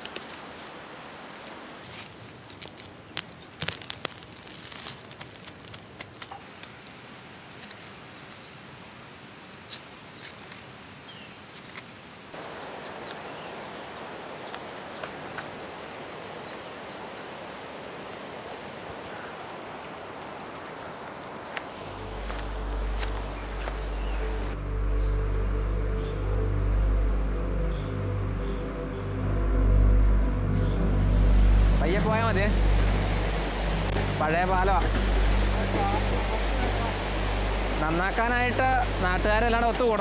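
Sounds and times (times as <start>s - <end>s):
leaves rustling: 0.0s - 40.0s
outdoor hiss: 0.0s - 40.0s
roots snapping: 1.8s - 7.9s, 21.5s - 24.3s.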